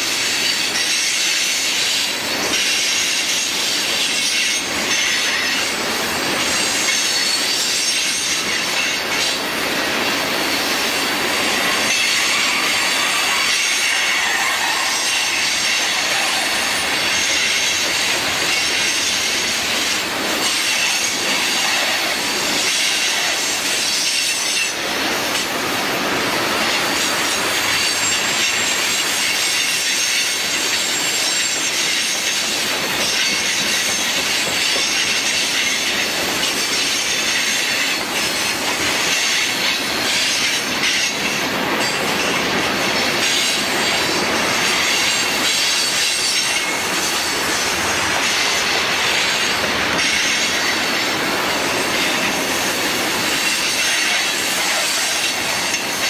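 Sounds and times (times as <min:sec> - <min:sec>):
freight train rolling on rails: 0:00.0 - 0:56.0
high wheel squeal: 0:00.3 - 0:09.3, 0:11.3 - 0:24.8, 0:26.8 - 0:38.4.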